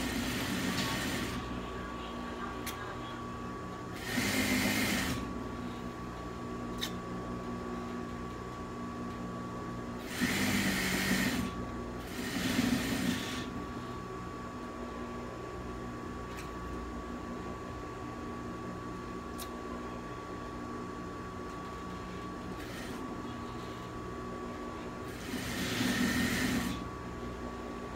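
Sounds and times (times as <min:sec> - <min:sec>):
sewing machine stitching: 0:00.0 - 0:01.4, 0:04.0 - 0:05.3, 0:10.0 - 0:13.5, 0:25.1 - 0:26.8
steady hum: 0:00.0 - 0:27.9.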